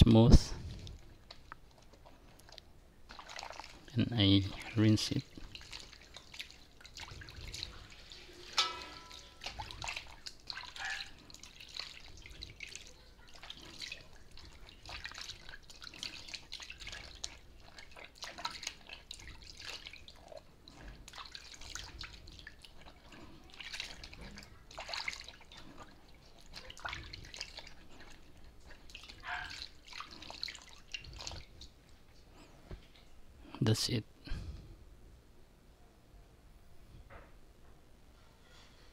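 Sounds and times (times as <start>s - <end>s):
water dripping: 0.7s - 32.0s
hands splashing in water basin: 3.1s - 20.2s, 21.0s - 31.8s.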